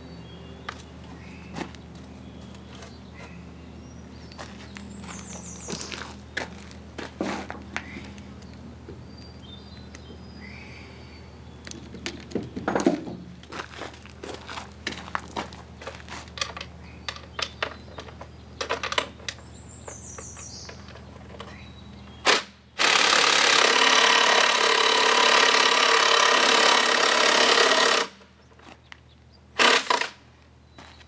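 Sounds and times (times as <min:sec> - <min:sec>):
power tool running: 0:22.3 - 0:28.2, 0:29.6 - 0:30.2.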